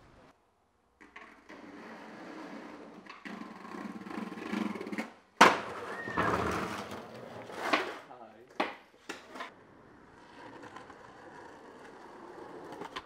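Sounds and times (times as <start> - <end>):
skateboard wheels rolling on paving: 1.0 - 13.0
skateboard landing slap: 4.9 - 8.0.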